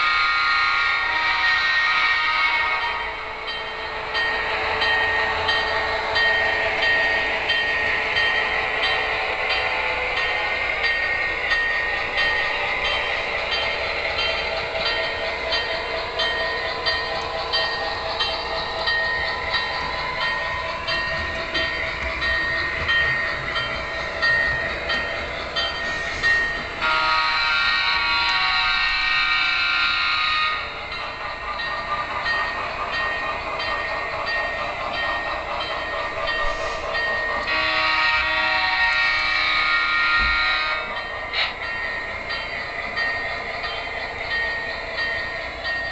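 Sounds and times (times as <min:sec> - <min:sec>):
model train air horn: 0:00.0 - 0:03.4, 0:26.8 - 0:30.8, 0:37.5 - 0:41.0.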